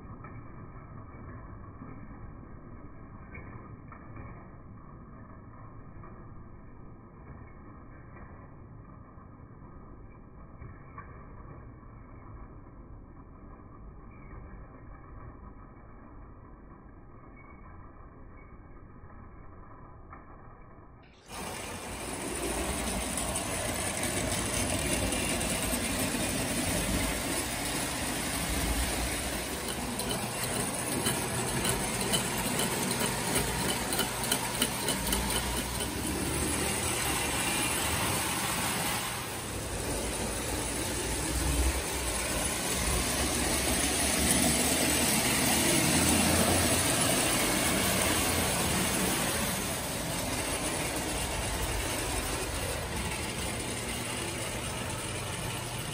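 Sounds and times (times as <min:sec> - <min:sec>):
wheels clattering on rails: 0:21.1 - 0:55.9
toy train motor whirring: 0:21.2 - 0:55.9.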